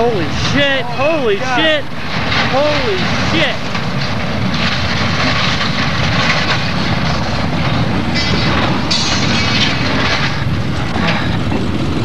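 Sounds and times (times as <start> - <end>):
train car grinding on track: 0.0 - 12.0.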